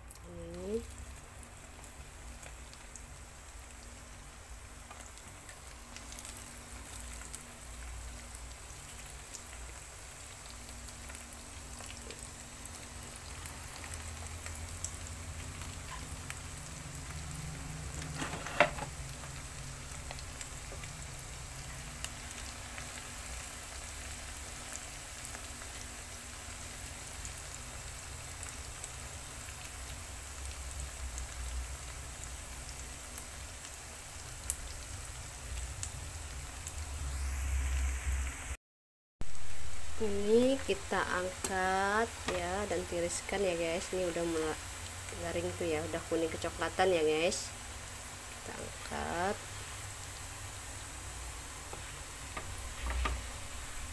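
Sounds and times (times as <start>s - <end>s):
food sizzling in hot oil: 0.0s - 38.6s, 39.2s - 53.9s.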